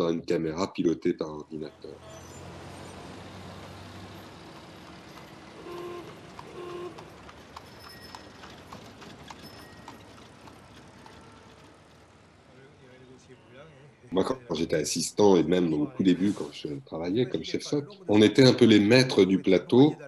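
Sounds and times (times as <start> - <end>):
old cars and buses running: 0.0 - 19.9
horses' hooves clip-clopping: 3.6 - 12.3
short car horn toots: 5.6 - 7.1, 10.9 - 11.8.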